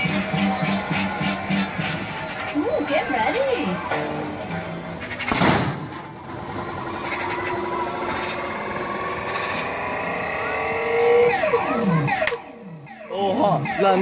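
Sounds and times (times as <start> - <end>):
arcade machine electronic effects: 8.3 - 14.0.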